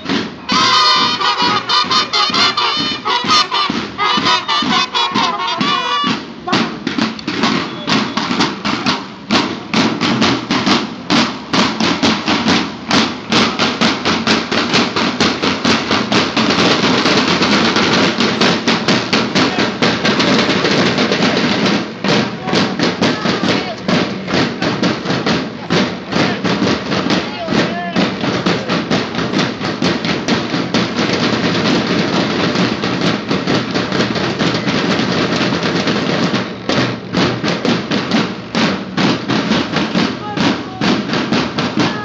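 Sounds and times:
marching band horns: 0.0 - 42.0
snare drums marching cadence: 0.0 - 42.0.

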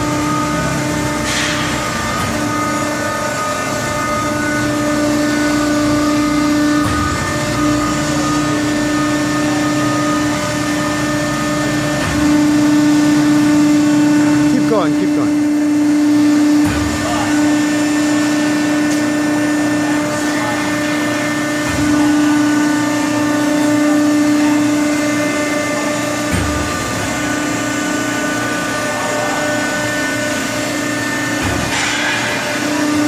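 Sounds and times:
hydraulic pump motor whine: 0.0 - 33.0.

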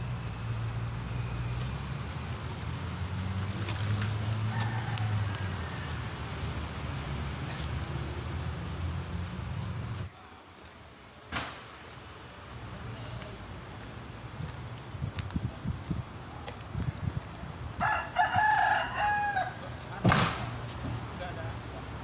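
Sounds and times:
vehicle engine idling: 0.0 - 11.2.

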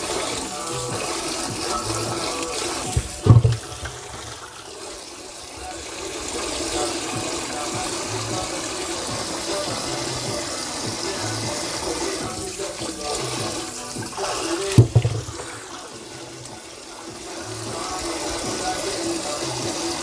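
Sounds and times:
tap water running into sink: 0.0 - 20.0
sharp knock: 14.8 - 15.4.

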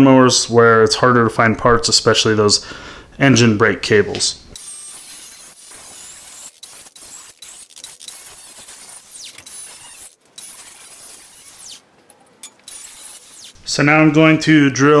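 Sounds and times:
angle grinder cutting steel: 4.6 - 11.8, 12.4 - 13.7.

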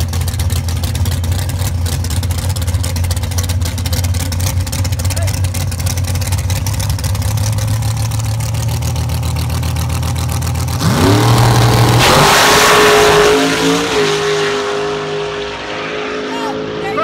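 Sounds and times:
drag car engine idling: 0.0 - 10.9
drag car launching and accelerating: 0.0 - 17.0.

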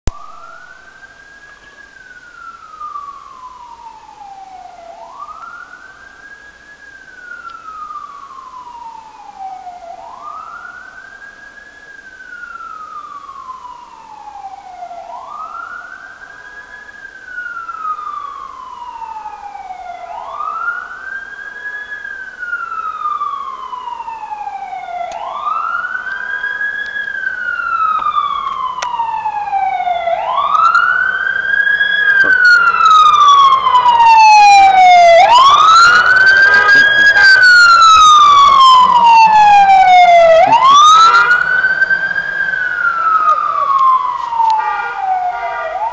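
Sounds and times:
fire truck siren wailing: 0.1 - 45.9.

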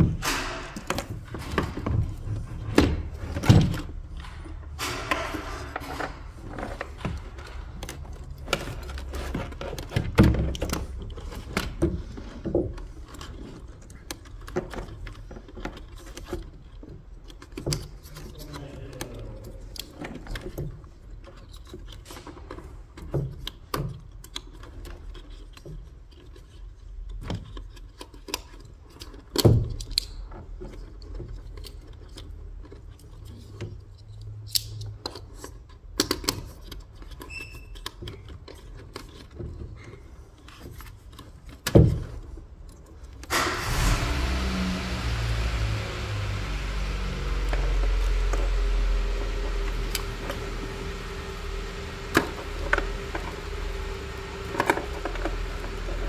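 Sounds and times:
plastic connectors clicking: 23.3 - 39.6.

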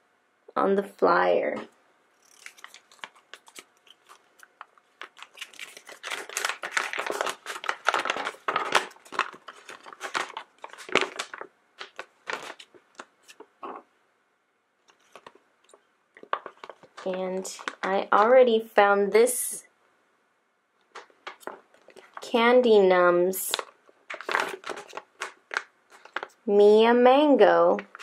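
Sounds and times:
paper crinkling and rustling: 2.2 - 13.8, 14.8 - 18.5, 20.9 - 22.4, 23.4 - 26.5, 27.7 - 28.0.

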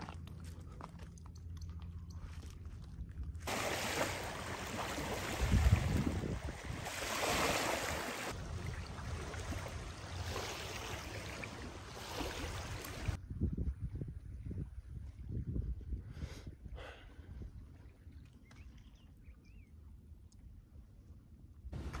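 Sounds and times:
lake water lapping: 3.5 - 13.2
wind on microphone: 4.6 - 18.1.

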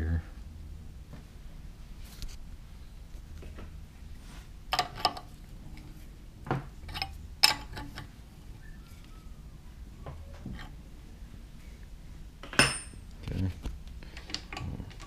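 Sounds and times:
low steady hum: 0.0 - 15.0
wrench clinking on metal: 6.9 - 8.0.

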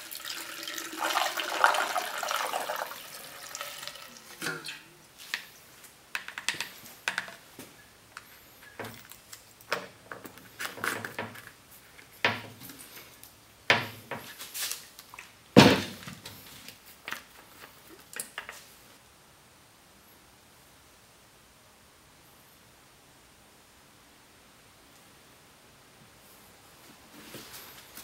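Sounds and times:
plastic parts clicking and knocking: 6.1 - 7.4.

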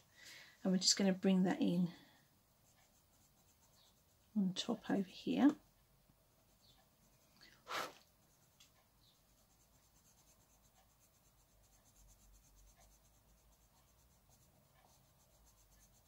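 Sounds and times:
pencil scratching on paper: 2.0 - 4.4, 6.4 - 16.0.

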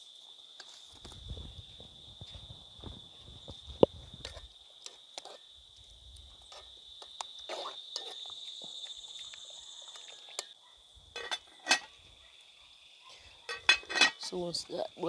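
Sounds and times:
high insect drone: 0.0 - 15.0
metal spoon scraping metal pot: 11.2 - 11.9, 13.4 - 14.3.

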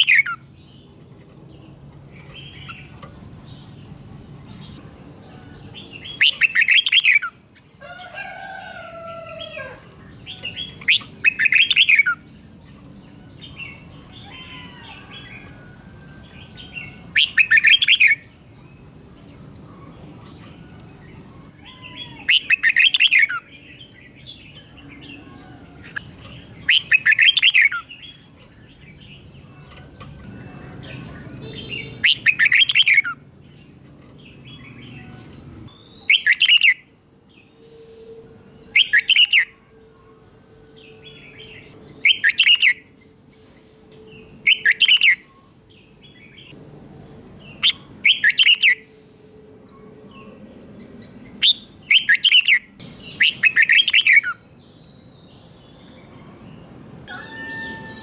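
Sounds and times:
bird warbling song: 0.0 - 8.1, 8.7 - 46.6, 47.4 - 58.0.

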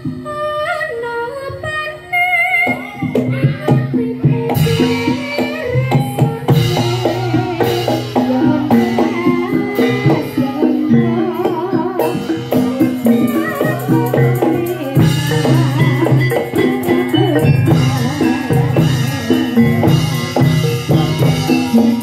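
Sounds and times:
wavering bending melody: 2.5 - 22.0
hand drums beating: 3.0 - 22.0.

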